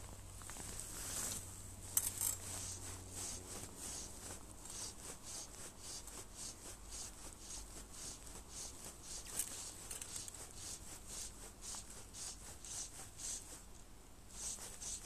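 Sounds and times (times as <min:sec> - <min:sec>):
fly line rasping through rod guides: 0:01.9 - 0:04.1, 0:07.4 - 0:13.4.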